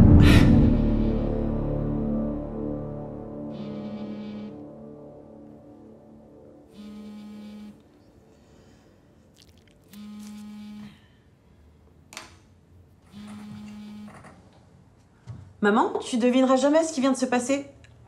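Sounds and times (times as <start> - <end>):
phone vibrating on table: 6.7 - 7.8, 9.9 - 11.0, 13.1 - 14.4.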